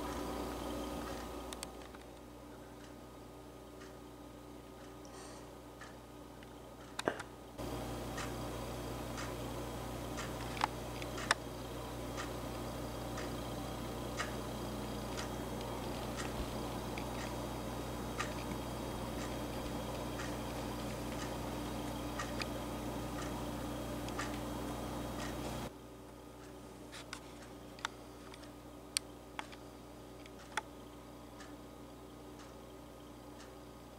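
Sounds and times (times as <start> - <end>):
low hum: 0.0 - 26.0
steady ticking: 1.0 - 7.0, 7.6 - 25.7, 27.4 - 33.7
sharp clicks: 10.2 - 11.4, 30.2 - 30.7.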